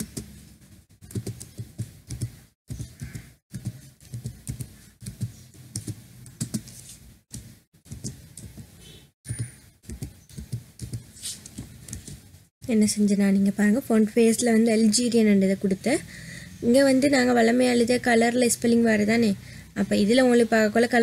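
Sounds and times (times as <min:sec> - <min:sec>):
typing on computer keyboard: 0:01.0 - 0:06.7, 0:09.3 - 0:11.1.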